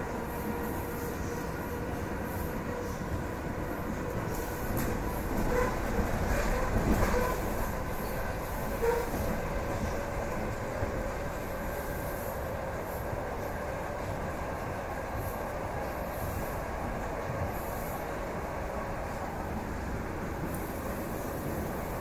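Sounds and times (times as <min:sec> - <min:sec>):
train rumbling on track: 0:00.0 - 0:22.0
train wheel knocks and clatter: 0:04.0 - 0:11.4.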